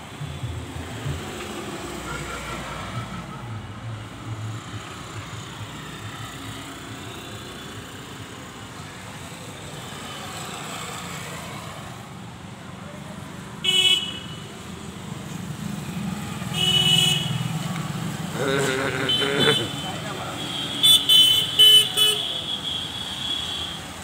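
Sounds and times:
vehicles passing on road: 0.0s - 24.0s
motorcycle approaching: 17.3s - 20.2s.

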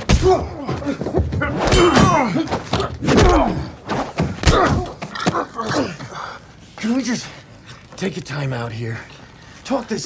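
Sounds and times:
men grunting and shouting: 0.0s - 6.6s.

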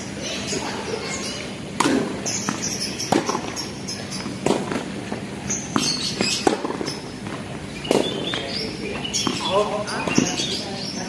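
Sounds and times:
tennis ball hits and bounces: 1.8s - 10.6s.

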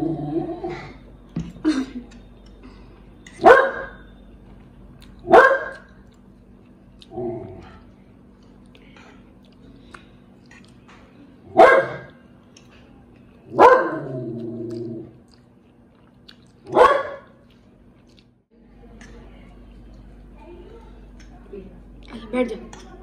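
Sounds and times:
dog barking: 3.4s - 4.0s, 5.3s - 5.9s, 11.6s - 12.2s, 13.5s - 14.1s, 16.7s - 17.3s.

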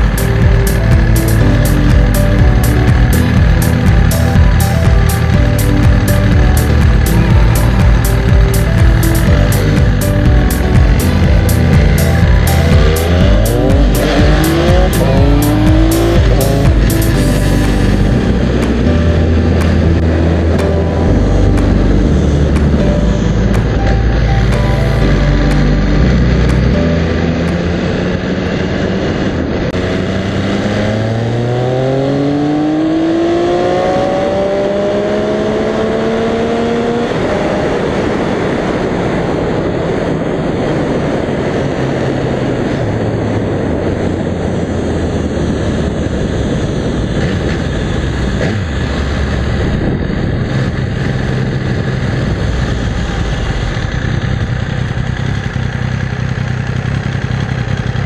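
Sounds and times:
motorcycle engine accelerating: 0.0s - 58.0s
wind and road noise: 0.0s - 58.0s.

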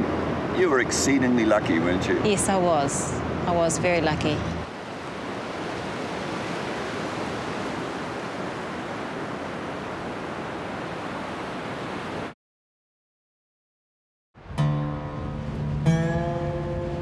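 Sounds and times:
small waves breaking on beach: 0.0s - 12.4s.

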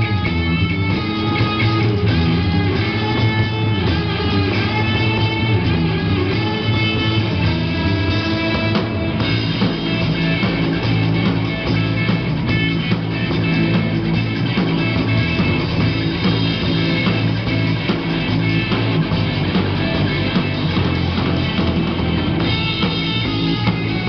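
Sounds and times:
live rock band playing: 0.0s - 24.0s.

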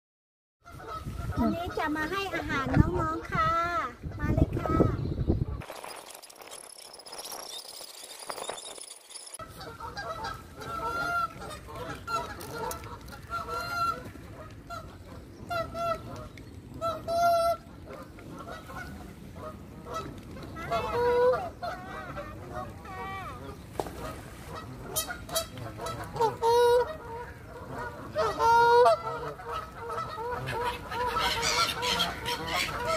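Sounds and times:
geese honking: 0.6s - 2.6s, 9.4s - 32.9s.

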